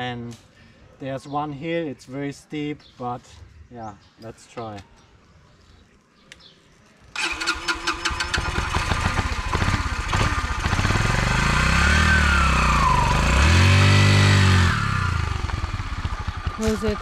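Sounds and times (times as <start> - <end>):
dirt bike engine starting and revving: 7.1 - 17.0.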